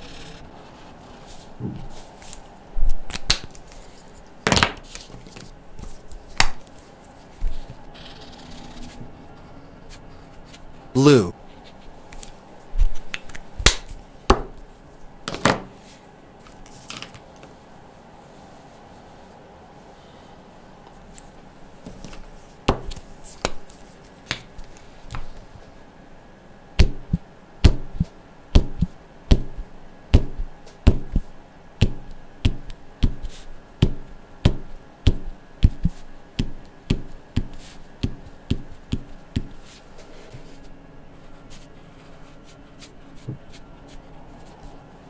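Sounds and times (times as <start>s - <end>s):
marker tapping on paper: 31.8s - 39.6s.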